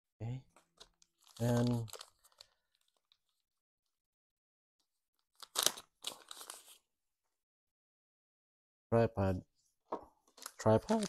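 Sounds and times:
plastic bag crinkling: 0:00.8 - 0:03.4, 0:10.3 - 0:11.0.

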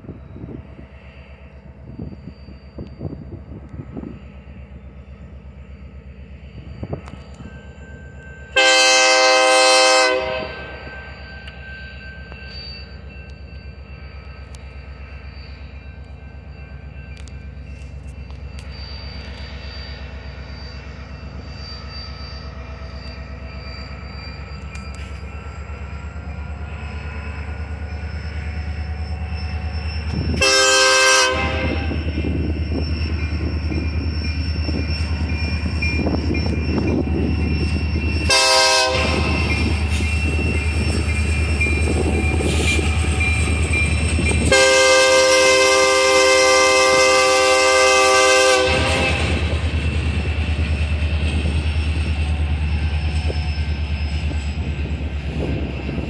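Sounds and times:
diesel locomotive engine rumble: 0:00.0 - 0:56.0
locomotive air horn: 0:08.6 - 0:10.8, 0:30.2 - 0:32.2, 0:38.2 - 0:39.8, 0:44.4 - 0:49.6
train wheels rolling: 0:10.7 - 0:56.0.

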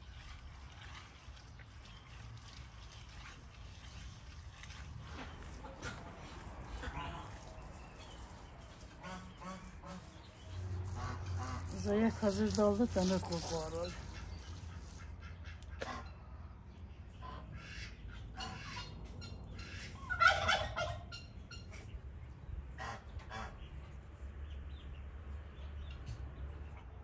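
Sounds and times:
fowl calling: 0:19.6 - 0:21.2.

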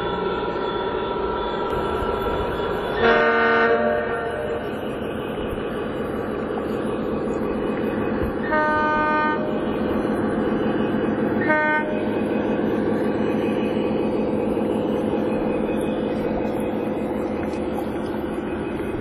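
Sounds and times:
diesel locomotive engine drone: 0:00.0 - 0:19.0
locomotive horn blasts: 0:03.0 - 0:04.7, 0:08.4 - 0:09.6, 0:11.4 - 0:12.0.

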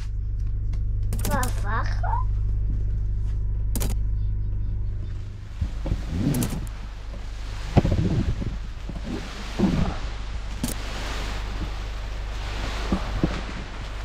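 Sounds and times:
generator humming: 0:00.0 - 0:14.0
knocks and rustles: 0:05.5 - 0:14.0.

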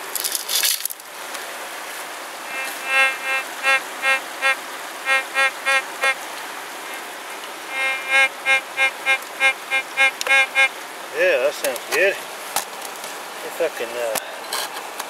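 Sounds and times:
steady hiss: 0:00.0 - 0:15.0
metal detector beeps: 0:02.5 - 0:06.2, 0:07.7 - 0:10.7.

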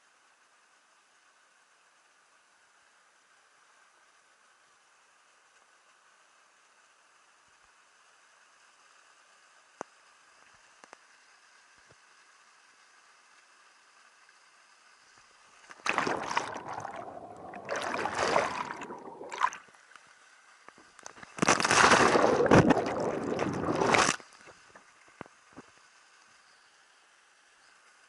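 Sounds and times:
water splashing and sloshing: 0:15.7 - 0:19.8, 0:21.0 - 0:24.8.

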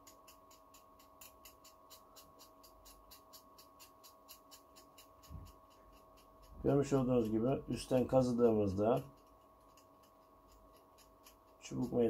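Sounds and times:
faint electrical hum: 0:00.0 - 0:12.0
soft even ticking: 0:00.0 - 0:12.0.

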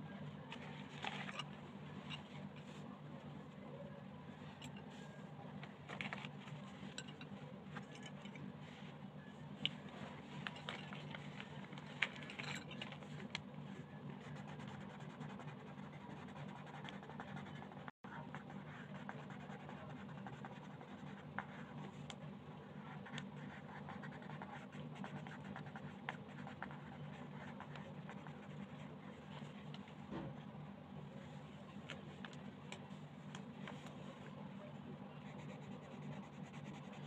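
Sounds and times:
steady low hum: 0:00.0 - 0:37.0
colored pencil scratching on paper: 0:14.1 - 0:22.0, 0:22.8 - 0:29.7, 0:35.2 - 0:37.0.

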